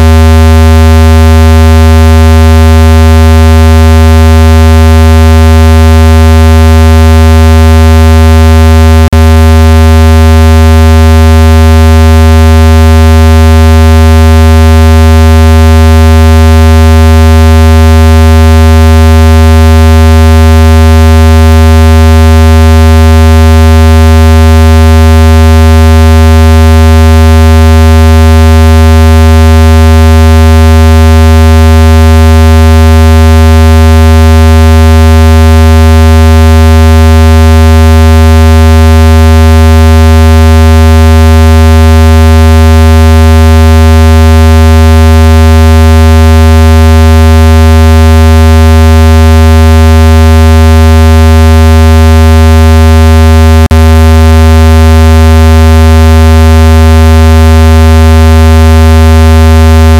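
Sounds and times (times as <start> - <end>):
loud steady low tone: 0.0 - 32.7, 53.6 - 54.3.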